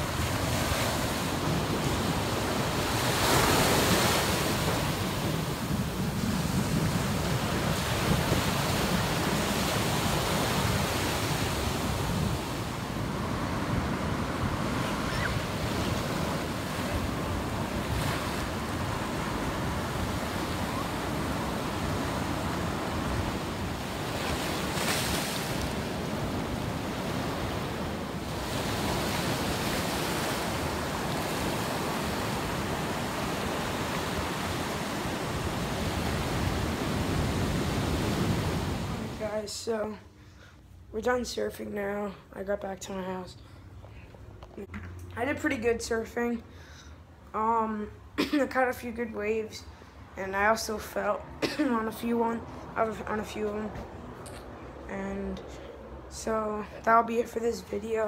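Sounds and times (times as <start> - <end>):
ocean surf breaking: 0.0 - 39.9.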